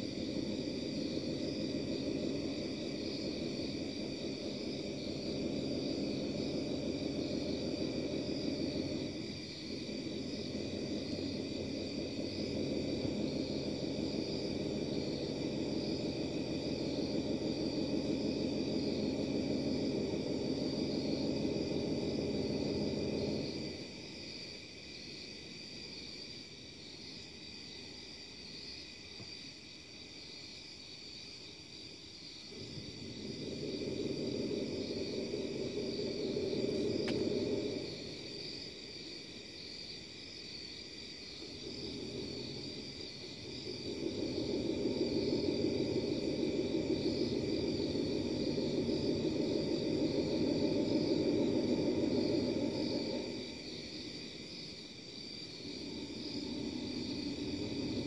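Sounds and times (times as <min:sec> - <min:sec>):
low wavering drone: 0:41.4 - 0:54.0.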